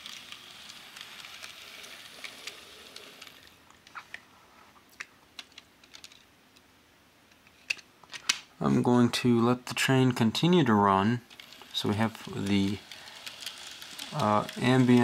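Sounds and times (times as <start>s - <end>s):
model train hiss and rattle: 0.0s - 3.6s, 9.2s - 15.0s.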